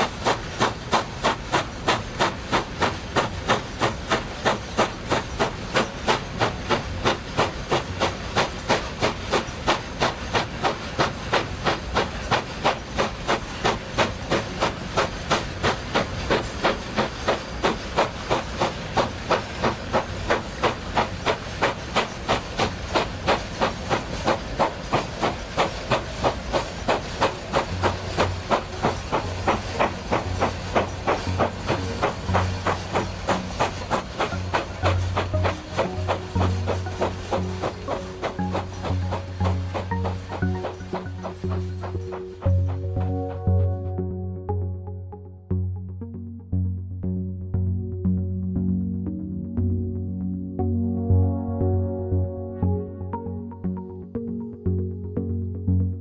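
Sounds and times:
steam locomotive chuffing: 0.0 - 43.5.

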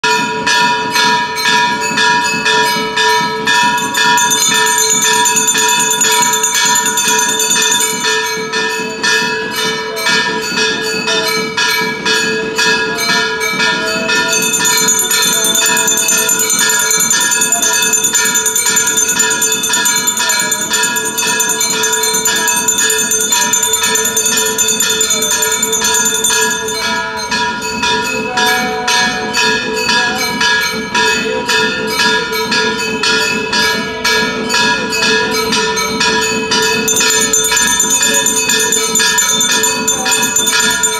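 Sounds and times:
brass bells ringing rapidly: 0.0 - 40.9
higher jingling: 13.6 - 28.4, 36.7 - 40.9.

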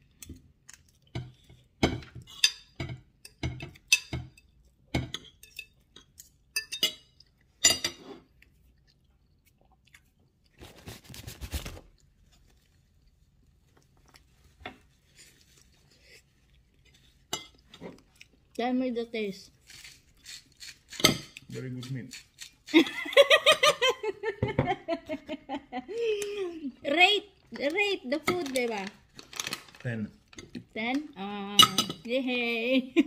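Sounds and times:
chewing: 0.1 - 1.7, 8.2 - 10.6, 11.9 - 18.6
cutlery clinking on a plate: 1.2 - 8.2, 31.6 - 32.1
scraping or rustling noise: 10.6 - 12.9.

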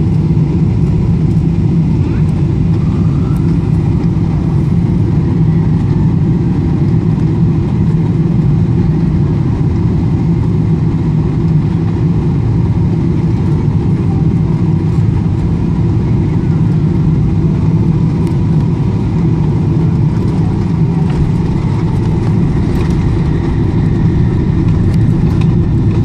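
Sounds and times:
airplane cabin engine rumble: 0.0 - 26.0.

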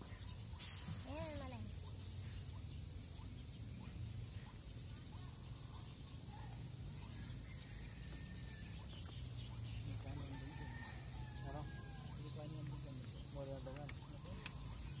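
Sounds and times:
faint bird chirps: 0.0 - 15.0
high insect drone: 0.0 - 15.0
faint click: 13.7 - 14.6.

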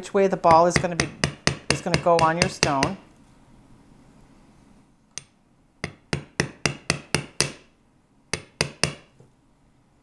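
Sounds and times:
hammer tapping metal: 0.5 - 3.0, 5.1 - 7.7, 8.3 - 9.1.

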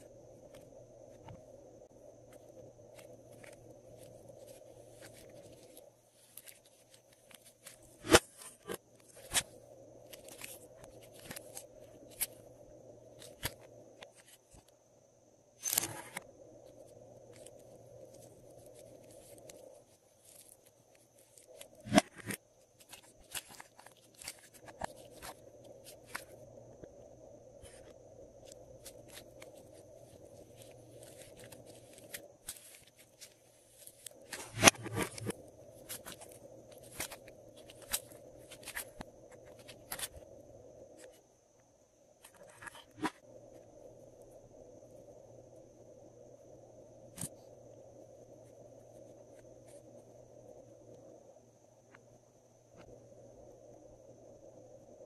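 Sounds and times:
clay crackling: 0.0 - 14.8, 15.6 - 44.3
faint hum: 0.0 - 55.0.

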